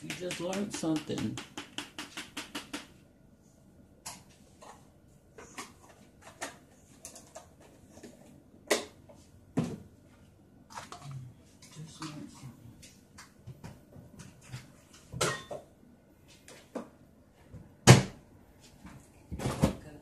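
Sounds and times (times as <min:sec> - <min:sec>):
kitchen items clicking and knocking: 0:00.0 - 0:02.9.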